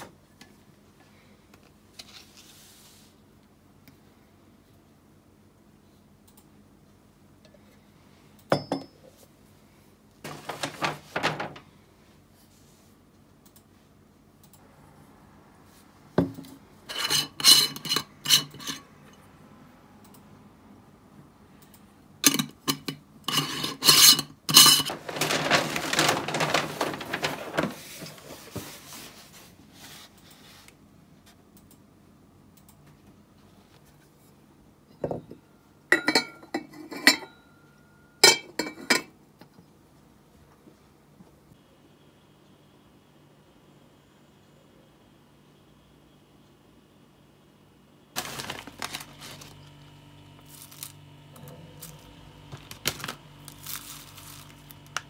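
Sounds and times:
faint steady low hum: 0.0s - 55.0s
dishes scraping: 16.9s - 18.9s, 22.3s - 25.4s
dishes and cutlery clinking: 36.0s - 37.4s.

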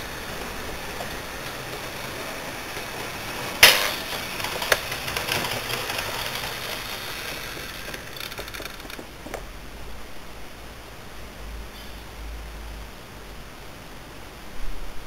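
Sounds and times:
model train clicking on track: 0.0s - 9.6s.

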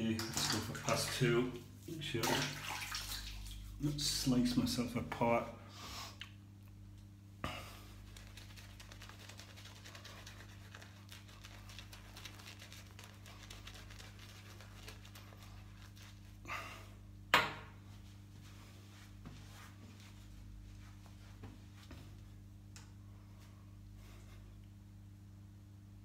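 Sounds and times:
shaving brush lathering skin: 0.1s - 4.4s, 7.9s - 16.4s.

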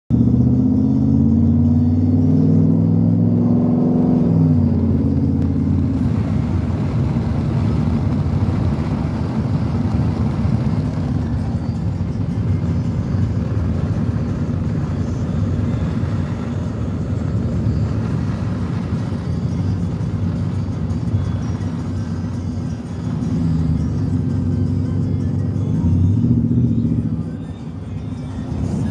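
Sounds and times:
road noise: 0.1s - 28.9s
truck engine droning: 0.1s - 28.9s.

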